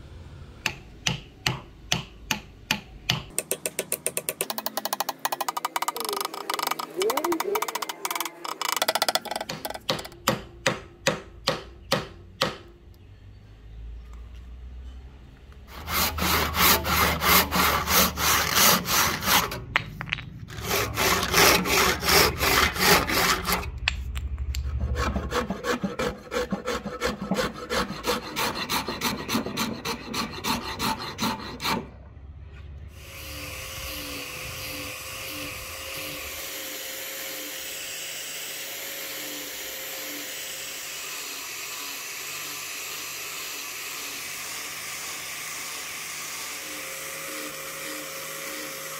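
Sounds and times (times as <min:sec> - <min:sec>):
hand rasp scraping wood: 0:15.7 - 0:19.6, 0:20.5 - 0:23.7, 0:24.8 - 0:31.9
electric grinder whirring: 0:32.9 - 0:48.9.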